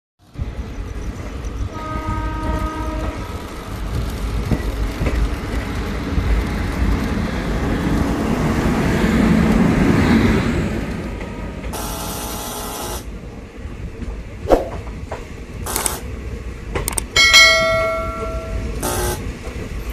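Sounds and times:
model train rumbling on track: 0.2 - 19.9
train horn: 1.7 - 3.4, 18.0 - 19.2.

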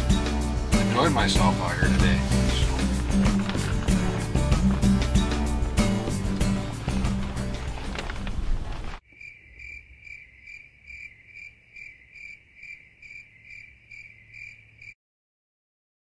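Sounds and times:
music: 0.0 - 8.7
cricket chirping: 9.0 - 15.0.

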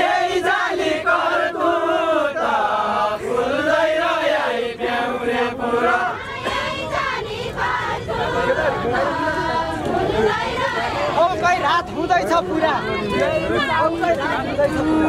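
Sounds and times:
men singing together: 0.0 - 11.2.

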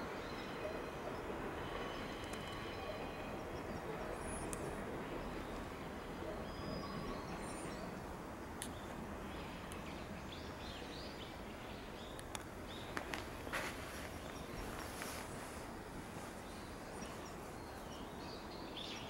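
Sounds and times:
small birds chirping: 8.6 - 15.6.

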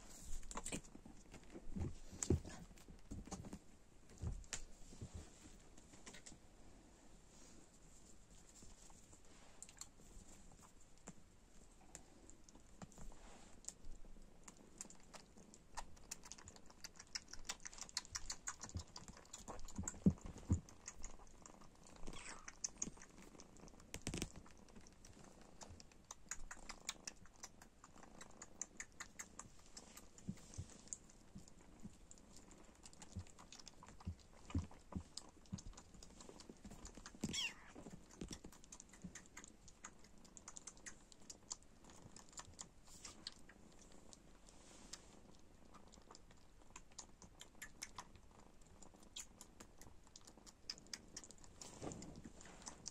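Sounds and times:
kitten suckling bottle: 32.7 - 43.6.

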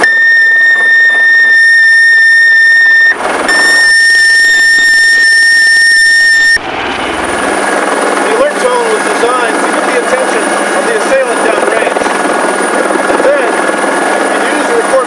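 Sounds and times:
piercing high alert tone: 0.0 - 6.6.

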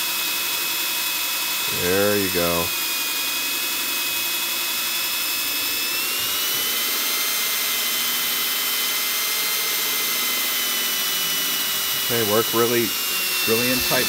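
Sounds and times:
cordless drill whining: 0.0 - 14.0.

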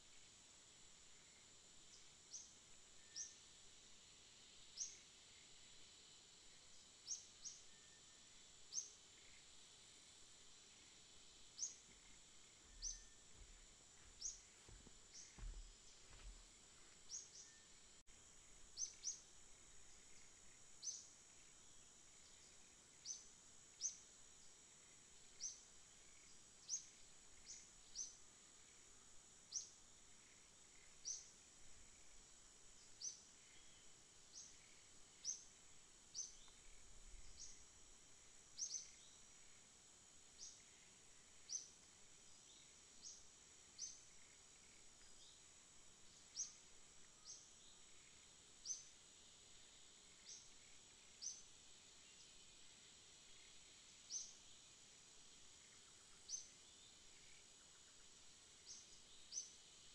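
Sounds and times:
faint steady high hiss: 0.0 - 59.9
small bird chirping: 11.5 - 17.8, 18.7 - 19.3, 38.5 - 39.3, 46.0 - 49.0.

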